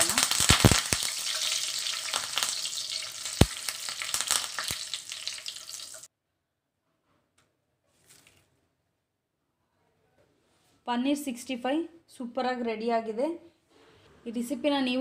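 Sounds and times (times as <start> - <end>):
leaves sizzling in hot oil: 0.0 - 6.1.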